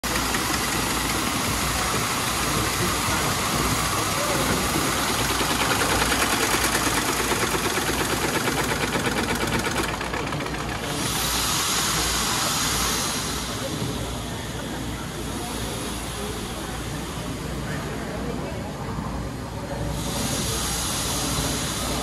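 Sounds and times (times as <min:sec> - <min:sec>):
rhythmic engine pulsing: 0:00.0 - 0:11.4
machinery clattering: 0:00.0 - 0:11.9
steam hissing: 0:00.0 - 0:17.9, 0:19.8 - 0:22.0.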